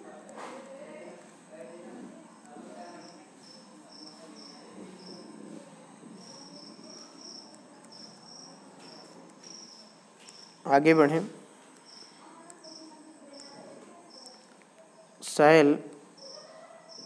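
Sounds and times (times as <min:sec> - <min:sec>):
background room noise: 0:00.0 - 0:17.0
insect chirping trill: 0:02.8 - 0:05.3, 0:06.2 - 0:10.6, 0:11.8 - 0:14.4, 0:16.1 - 0:17.0.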